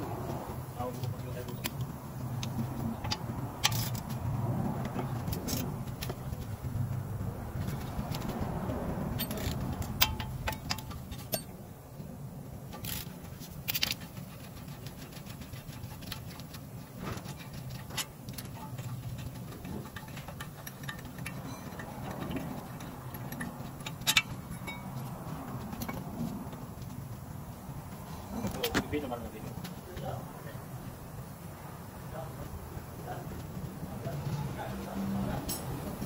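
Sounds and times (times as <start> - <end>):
metal clinks and knocks: 1.0 - 11.6, 12.6 - 30.2, 35.2 - 36.0
ratchet wrench clicking: 1.6 - 7.0, 9.1 - 11.5, 12.7 - 26.1.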